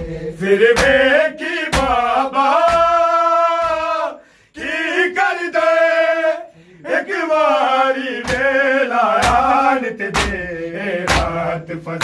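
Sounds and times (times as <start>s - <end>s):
men chanting together: 0.0s - 12.0s
hand slapping chest: 0.6s - 4.0s, 8.2s - 11.5s.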